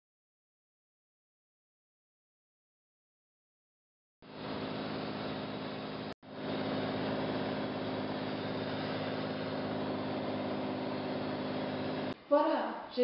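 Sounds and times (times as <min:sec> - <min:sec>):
aircraft engine drone: 0:04.3 - 0:12.2.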